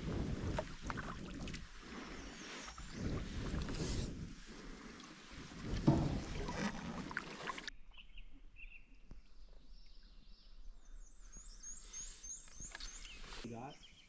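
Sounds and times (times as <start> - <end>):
wind on microphone: 0.0 - 4.8
high bird song: 1.8 - 4.0, 7.7 - 14.0
birds chirping: 1.8 - 6.7, 7.6 - 14.0.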